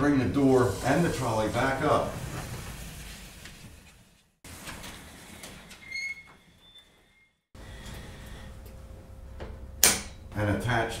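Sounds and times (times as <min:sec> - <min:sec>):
garage door rolling on metal tracks: 0:00.4 - 0:08.4
high door squeak: 0:04.9 - 0:07.4.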